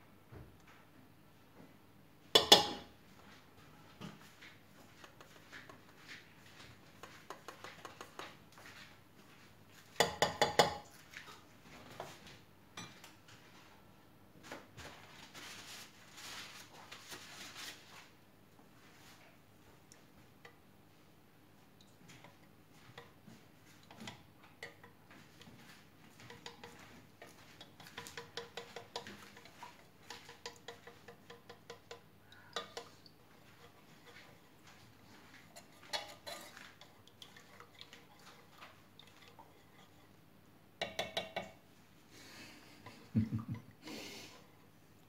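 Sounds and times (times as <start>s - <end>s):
wooden stirrer scraping saucepan: 22.2s - 32.0s, 32.6s - 40.2s.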